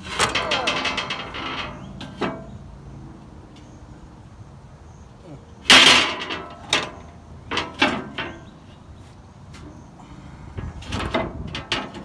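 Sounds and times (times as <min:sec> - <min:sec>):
metal floor panel clanking: 0:00.0 - 0:02.6, 0:05.7 - 0:08.6.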